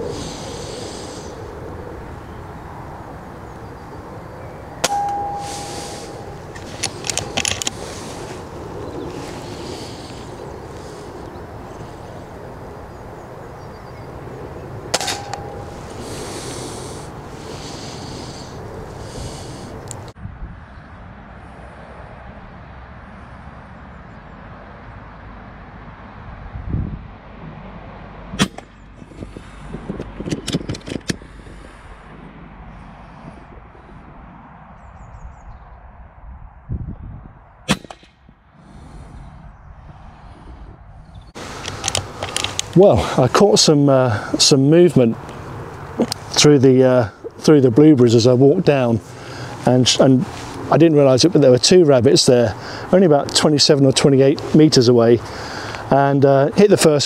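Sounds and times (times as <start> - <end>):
air rifle shot with ringing tone: 4.8 - 6.5, 14.9 - 15.8, 37.7 - 38.4
metallic clicks of rifle lever: 6.6 - 7.8, 41.6 - 42.8
air rifle shot: 14.9 - 15.7, 28.4 - 28.7, 37.7 - 38.3.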